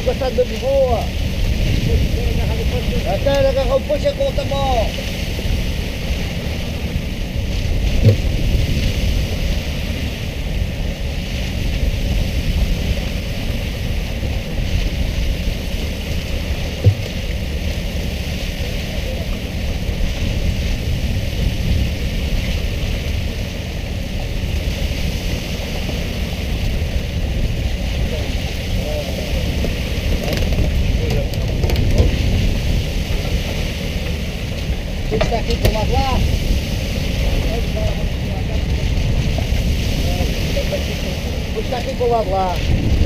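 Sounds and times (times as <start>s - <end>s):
boat engine rumbling: 0.0s - 43.0s
water splashing against hull: 0.0s - 43.0s
wind on microphone: 0.0s - 43.0s.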